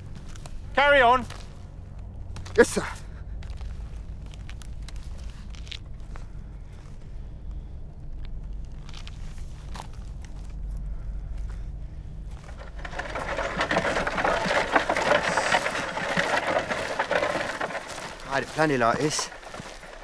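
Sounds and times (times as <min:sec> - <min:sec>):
wooden cart rolling over rough ground: 0:12.2 - 0:20.0.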